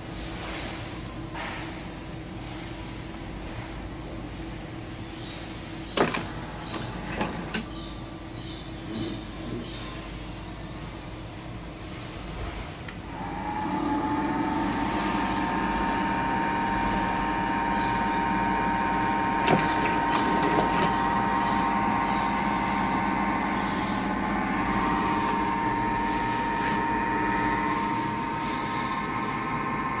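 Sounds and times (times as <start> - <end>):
electric motor whining: 13.1 - 29.9.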